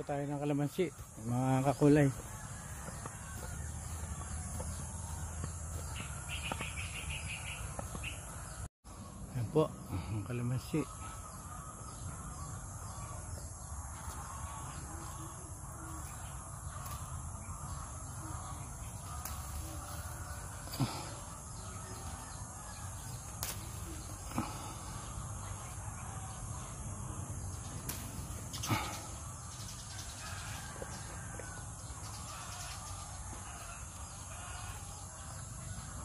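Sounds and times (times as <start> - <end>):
faint bird calls: 0.0 - 36.0
insects droning: 0.0 - 36.0
rustles: 18.4 - 22.2, 23.0 - 24.7.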